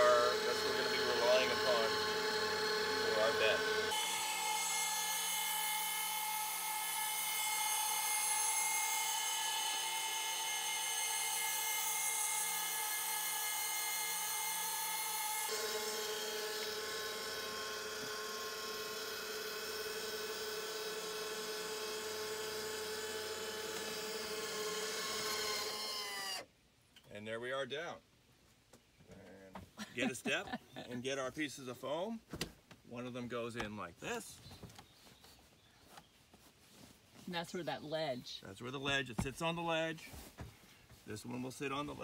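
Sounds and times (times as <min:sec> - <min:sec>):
electric motor whine: 0:00.0 - 0:26.4.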